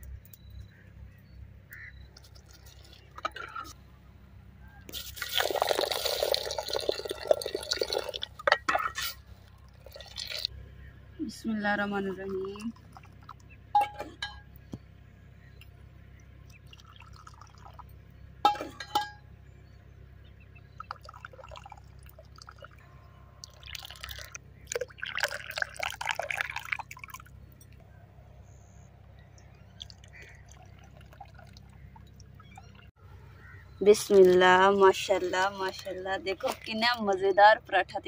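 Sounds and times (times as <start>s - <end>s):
liquid pouring into cup: 5.2s - 8.7s, 16.7s - 17.8s, 23.4s - 27.3s.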